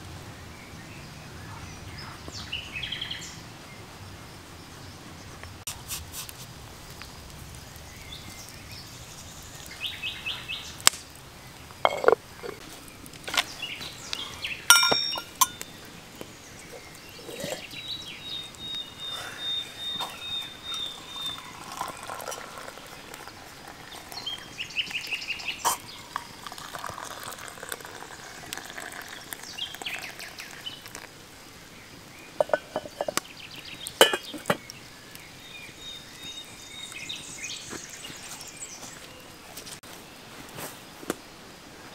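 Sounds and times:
birds chirping: 7.0s - 40.4s
cookware clinking and knocking: 11.9s - 12.6s, 14.7s - 15.6s, 32.4s - 33.2s, 34.0s - 34.6s
tea pouring into mugs: 16.7s - 31.2s.

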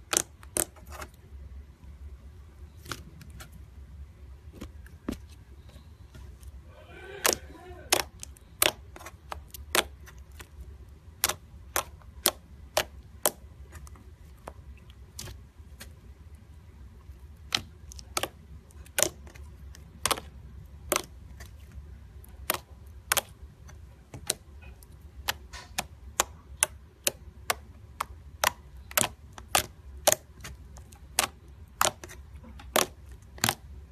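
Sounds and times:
slime squeezed clicking and popping: 25.2s - 33.6s.

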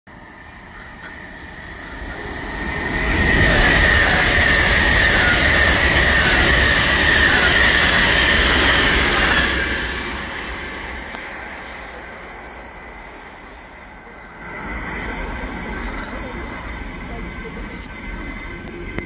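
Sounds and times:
electric train passing at speed: 0.1s - 19.0s.

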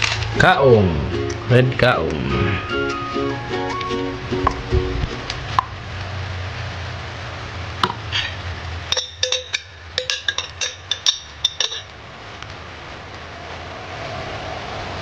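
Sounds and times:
metal spoon clinking in glass jar: 8.9s - 11.9s.

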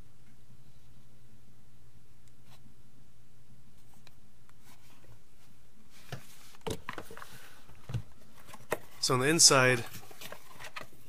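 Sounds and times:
steady low hum: 0.0s - 11.0s
plastic packs clicking and rustling: 6.7s - 11.0s.

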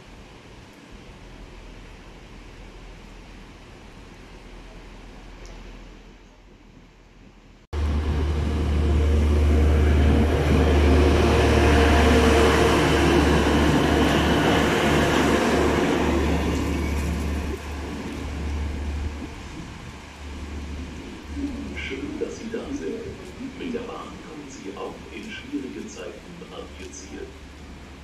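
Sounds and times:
train wheels on rails: 6.4s - 27.9s
diesel engine drone: 7.8s - 28.0s.

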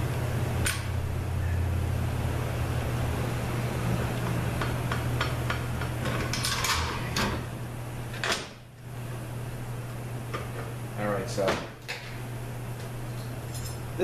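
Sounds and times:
low hum: 0.0s - 8.1s.

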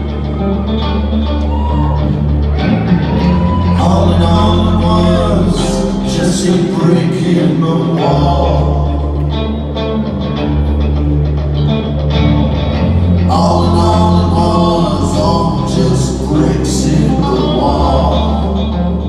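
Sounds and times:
live rock band playing: 0.0s - 6.1s, 8.1s - 15.9s
guitar: 0.0s - 19.0s
held bass notes: 0.0s - 19.0s
person singing: 3.0s - 10.1s, 13.0s - 19.0s.

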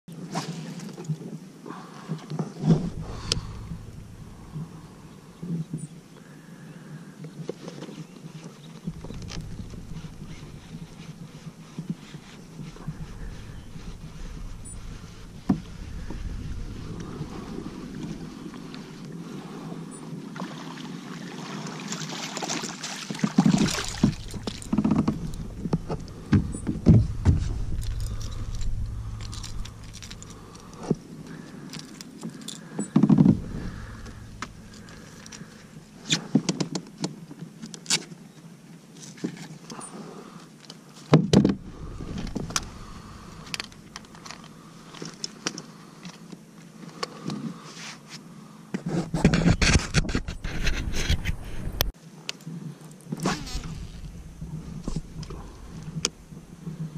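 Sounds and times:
knocks and scrapes on plastic hull: 8.9s - 18.4s, 23.2s - 30.2s, 48.8s - 51.9s.

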